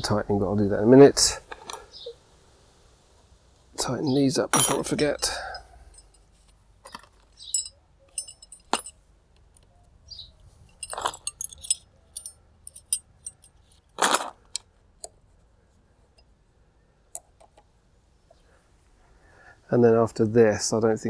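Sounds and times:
metal tools clinking: 4.5s - 9.0s, 10.6s - 14.6s.

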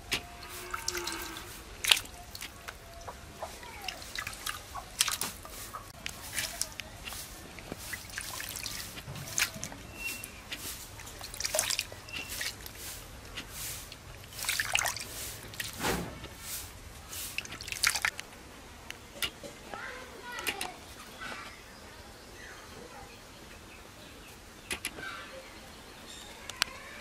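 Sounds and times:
water dripping and trickling: 0.0s - 20.7s
wet fish splatting in bowl: 0.1s - 2.8s, 3.4s - 12.9s, 13.5s - 16.6s, 17.2s - 18.2s.

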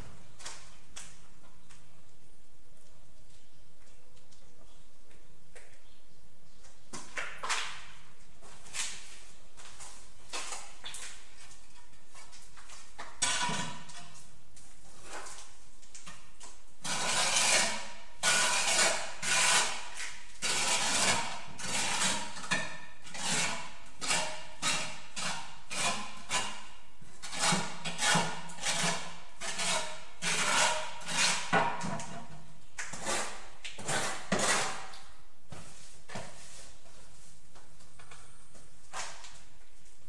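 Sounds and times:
trowel scraping mortar: 16.8s - 32.1s, 32.8s - 35.1s.

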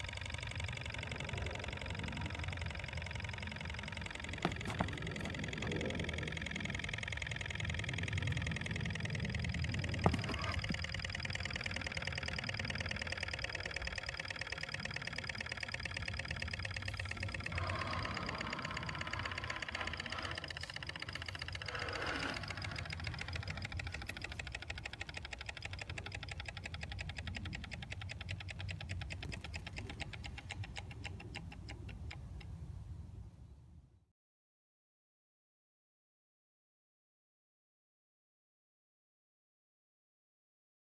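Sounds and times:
engine mechanical ticking: 0.0s - 32.8s
low hum: 0.0s - 34.0s.

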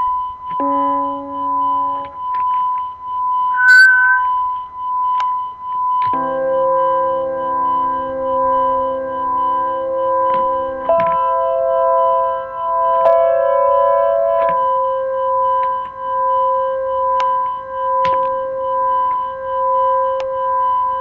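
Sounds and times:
synthesizer sustained notes: 3.6s - 4.3s.

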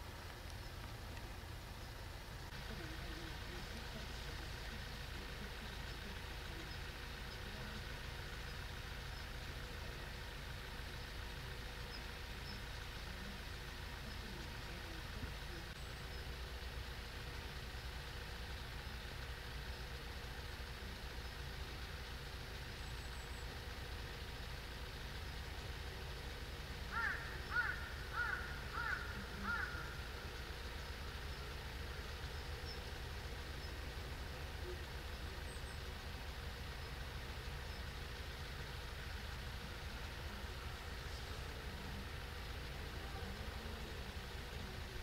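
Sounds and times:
crow cawing: 26.9s - 30.1s.

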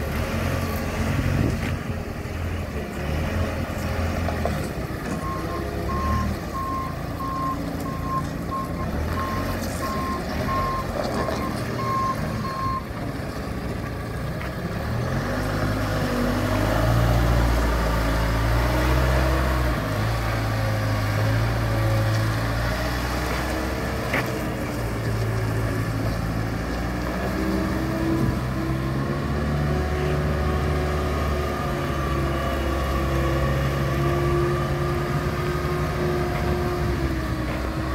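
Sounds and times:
diesel engine running: 0.0s - 37.9s
reversing alarm beeping: 5.2s - 12.9s.

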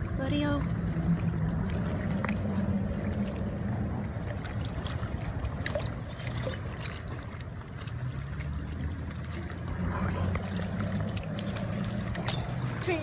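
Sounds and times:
low rumble: 0.0s - 13.0s
water lapping among rocks: 0.0s - 13.0s
small ticks and splashes: 4.0s - 13.0s.

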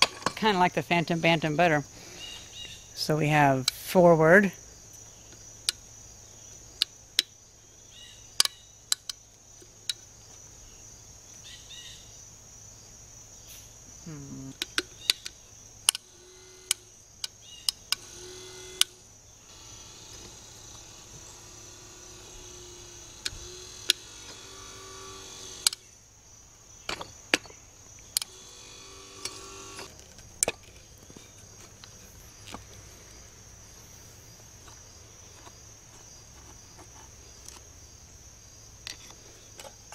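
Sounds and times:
crickets chirping: 0.0s - 39.9s
electric motor humming faintly: 15.9s - 25.9s, 27.9s - 30.4s.

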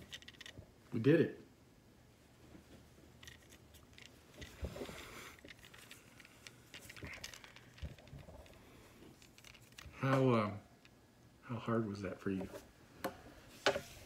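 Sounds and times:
hand rustling stopwatch: 0.0s - 0.6s, 3.2s - 10.0s.

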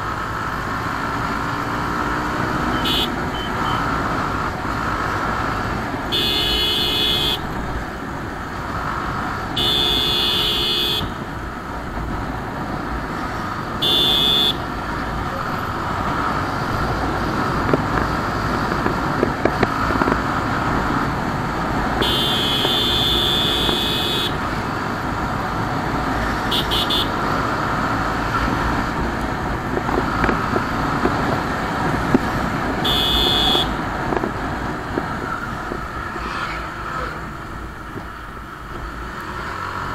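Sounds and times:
horn honking: 2.5s - 4.0s, 6.1s - 7.5s, 9.5s - 11.2s, 13.8s - 14.7s, 22.0s - 24.4s, 26.4s - 27.3s, 32.8s - 33.9s.

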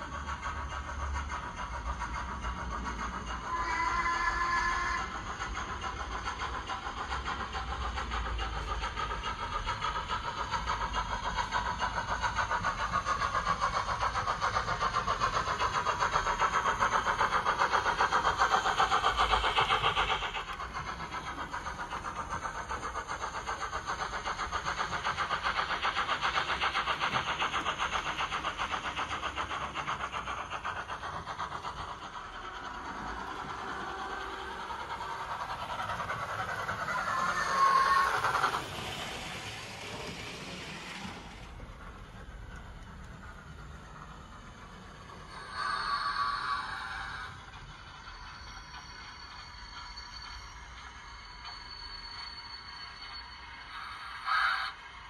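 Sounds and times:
model steam locomotive chuffing: 0.0s - 55.0s.

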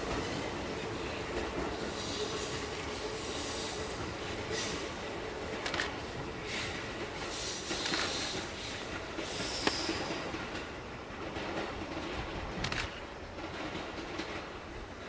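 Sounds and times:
electric train running hiss: 0.0s - 10.5s
train track clicks: 0.0s - 15.0s.

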